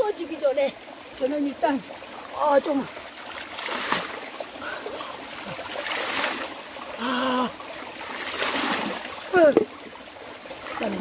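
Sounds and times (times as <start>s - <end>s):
stream trickling: 0.0s - 11.0s
water splashing from scoop: 3.3s - 4.3s, 4.9s - 6.6s, 8.0s - 9.9s.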